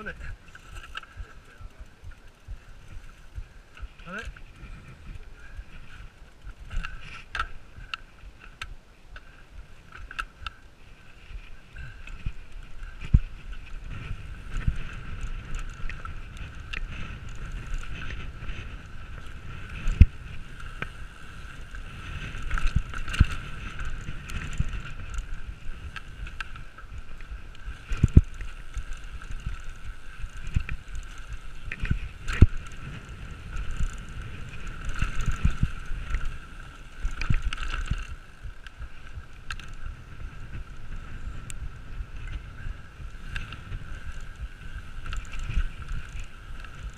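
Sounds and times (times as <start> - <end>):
tyre and wind rumble: 0.0 - 46.9
bike knocks and rattles: 12.1 - 39.8.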